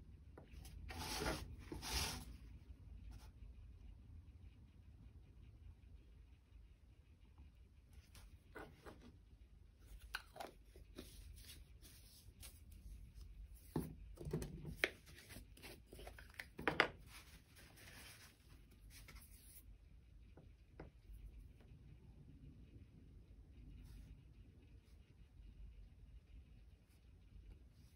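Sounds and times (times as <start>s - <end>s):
paper tissue rustling: 15.0s - 19.6s.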